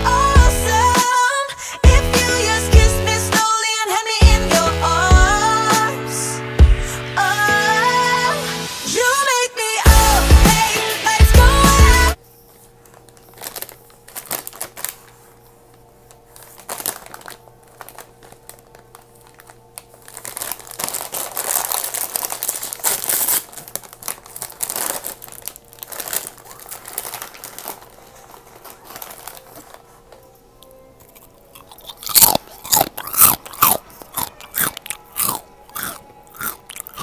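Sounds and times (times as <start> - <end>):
chip bag crinkling: 12.6 - 37.0.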